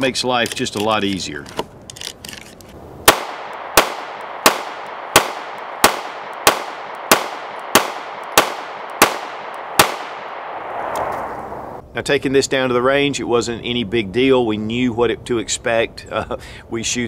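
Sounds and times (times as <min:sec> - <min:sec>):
pistol shots: 0:03.0 - 0:11.1.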